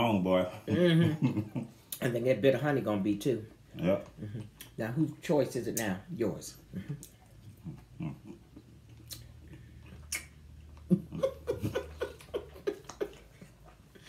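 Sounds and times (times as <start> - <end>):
person chewing candy: 7.0 - 11.2
soft mouth clicks: 8.9 - 10.4.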